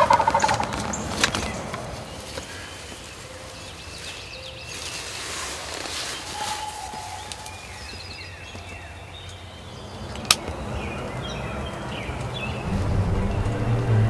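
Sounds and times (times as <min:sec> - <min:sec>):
birds chirping: 0:00.0 - 0:14.0
music: 0:12.6 - 0:14.0.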